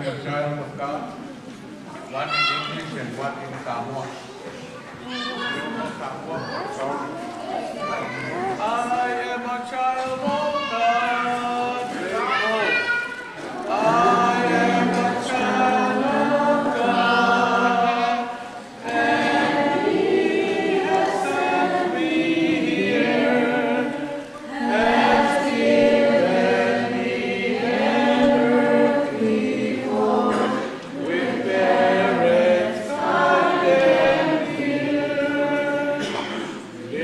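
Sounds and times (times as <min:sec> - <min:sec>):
group singing in harmony: 0:13.4 - 0:37.0.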